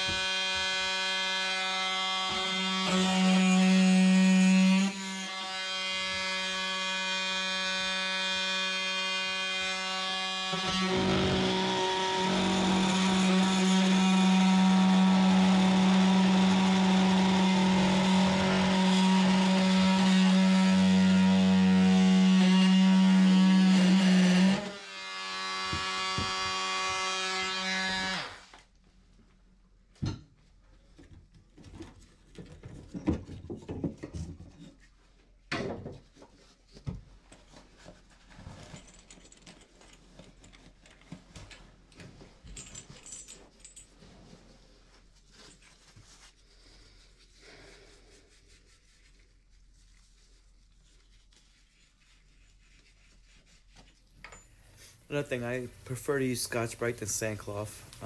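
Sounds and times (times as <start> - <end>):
grinder cutting tile: 0.0 - 28.4
power tool motor whining: 4.8 - 28.4.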